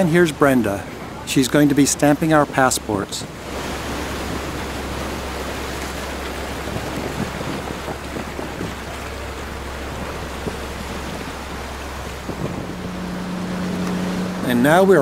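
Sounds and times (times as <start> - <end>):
sea water washing around boats: 0.0 - 15.0
wind: 0.0 - 15.0
low engine hum: 3.2 - 15.0.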